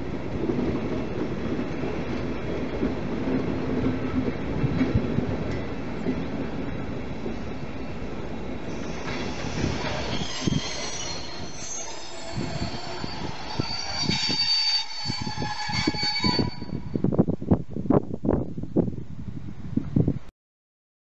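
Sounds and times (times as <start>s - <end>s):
train rumble: 0.0s - 20.2s
train wheels squealing on rails: 8.7s - 17.1s.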